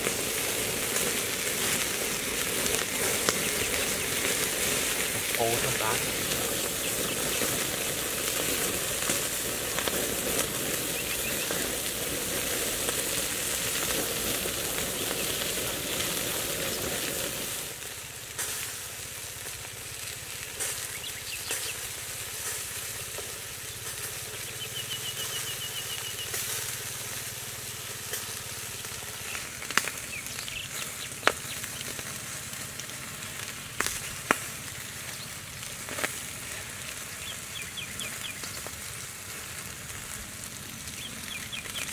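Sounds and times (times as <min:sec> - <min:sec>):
fish sizzling: 0:00.0 - 0:41.9.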